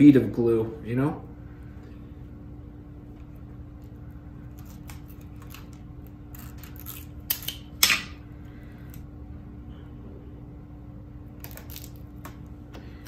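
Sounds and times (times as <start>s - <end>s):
steady low hum: 0.0s - 13.0s
tape crackling and clicking: 3.2s - 8.2s, 11.3s - 13.0s.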